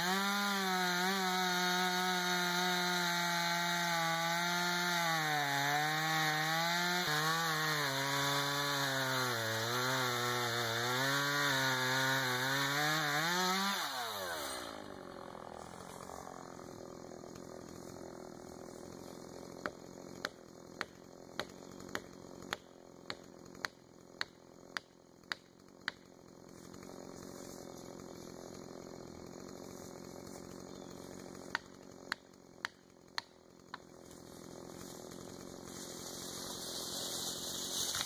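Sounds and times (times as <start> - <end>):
axe chopping tree: 16.9 - 38.0.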